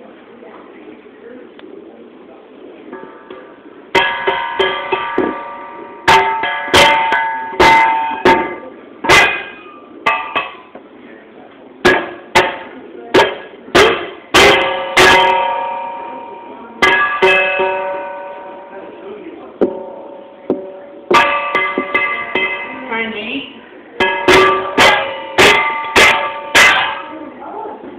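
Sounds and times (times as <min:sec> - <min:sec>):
mallet striking steel bowl: 0:03.1 - 0:10.8, 0:19.6 - 0:22.9, 0:24.0 - 0:27.2.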